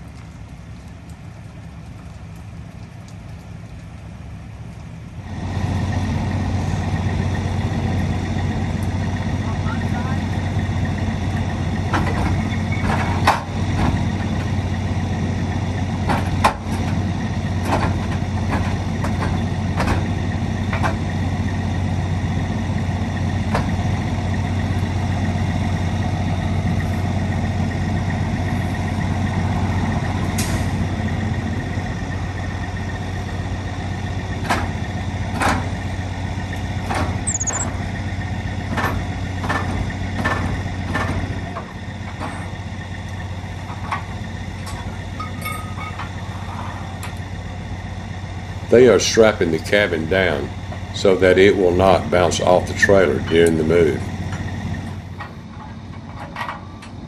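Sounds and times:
diesel truck engine running: 0:00.0 - 0:57.0
sharp knocks and clanks: 0:11.9 - 0:14.5, 0:16.0 - 0:17.0, 0:17.6 - 0:20.1, 0:38.7 - 0:42.4, 0:43.6 - 0:46.2.

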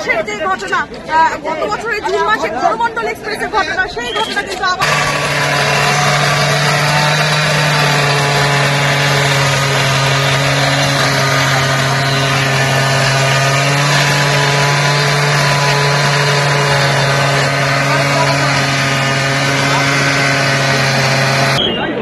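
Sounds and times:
engine running: 0:04.8 - 0:21.6.

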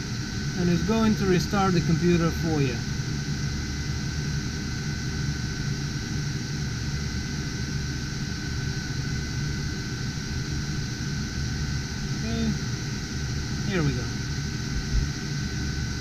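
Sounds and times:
computer fans whirring: 0:00.0 - 0:16.0
thin constant whine: 0:00.0 - 0:16.0
low hum: 0:09.9 - 0:16.0.

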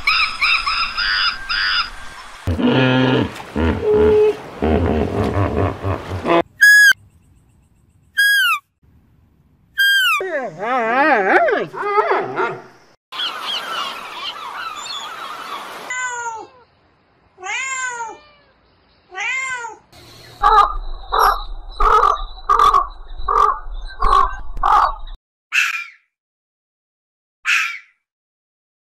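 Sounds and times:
high falling animal calls: 0:00.0 - 0:07.0, 0:08.2 - 0:08.6, 0:09.8 - 0:16.7, 0:19.1 - 0:26.0
hippo low call: 0:02.5 - 0:07.0
low hum: 0:20.0 - 0:25.2
gull colony calling: 0:20.4 - 0:25.2.

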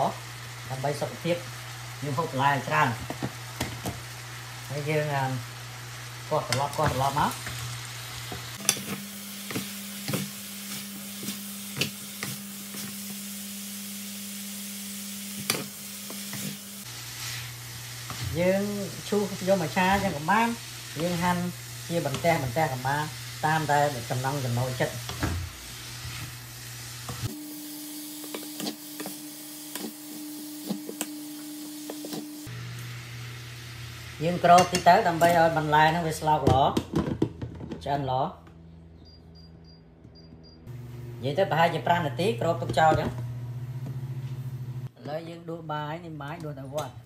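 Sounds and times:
food sizzling in a wok: 0:00.0 - 0:36.4.

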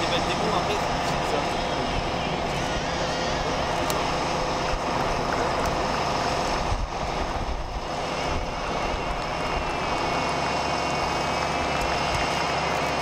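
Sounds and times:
jet engine rumble and whine: 0:00.0 - 0:13.0.

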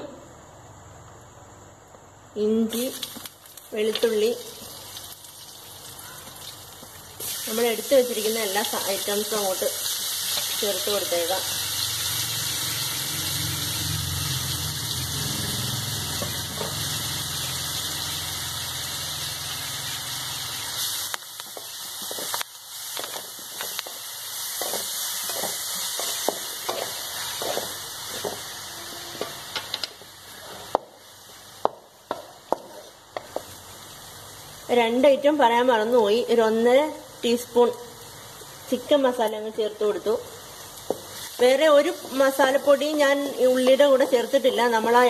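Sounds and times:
food sizzling in oil: 0:02.7 - 0:45.0
wooden spatula scraping pan: 0:24.5 - 0:29.7, 0:32.1 - 0:33.4.

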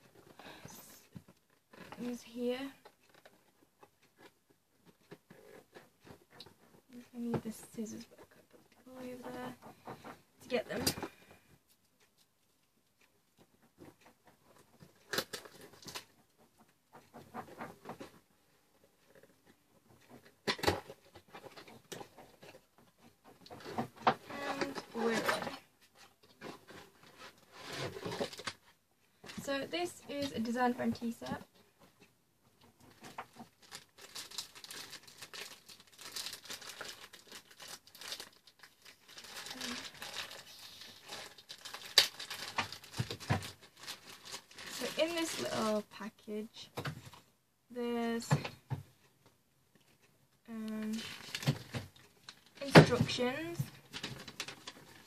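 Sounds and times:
packaging rustling: 0:23.4 - 0:31.4, 0:32.9 - 0:46.1, 0:50.8 - 0:55.0.

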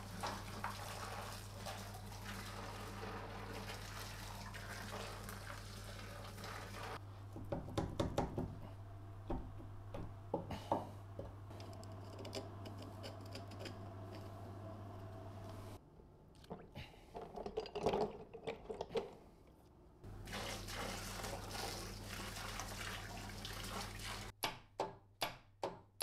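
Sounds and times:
water pouring into plastic bucket: 0:00.0 - 0:07.0, 0:20.2 - 0:24.3
low steady hum: 0:07.0 - 0:17.0.

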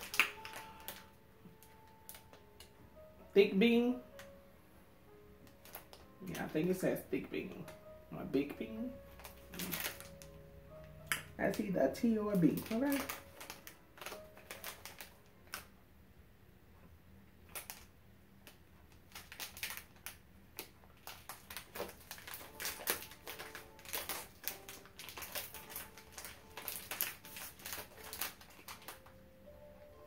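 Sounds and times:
plastic wrapper crinkling: 0:00.0 - 0:02.7, 0:05.5 - 0:07.9, 0:08.6 - 0:15.7, 0:17.4 - 0:29.2.

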